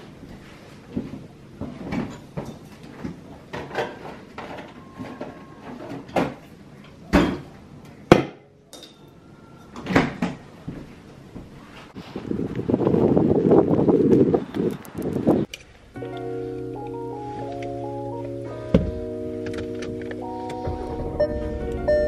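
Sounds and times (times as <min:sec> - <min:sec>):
refrigerator doors opening and shutting: 0:09.8 - 0:10.4, 0:18.6 - 0:22.0.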